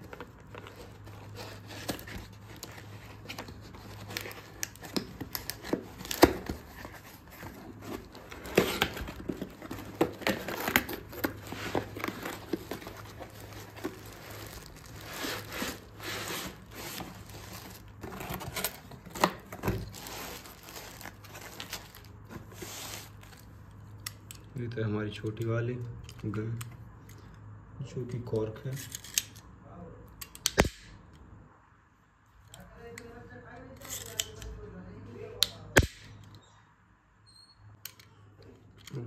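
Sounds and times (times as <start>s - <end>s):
cardboard tearing and scraping: 0.0s - 23.5s
plastic packing crinkling: 0.0s - 23.5s.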